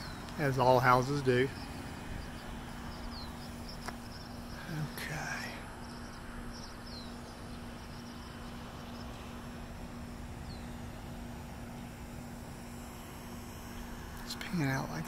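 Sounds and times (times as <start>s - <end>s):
bird chirps: 0.0s - 9.2s
distant highway traffic rumble: 0.0s - 15.0s
steady hum: 0.0s - 15.0s.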